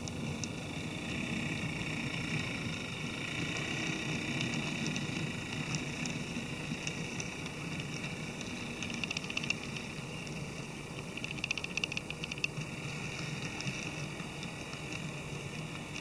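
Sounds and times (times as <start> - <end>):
model train rumbling: 0.0 - 11.2.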